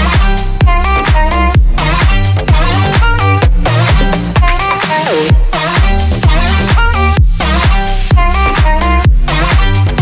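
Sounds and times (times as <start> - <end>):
electronic dance music: 0.0 - 10.0.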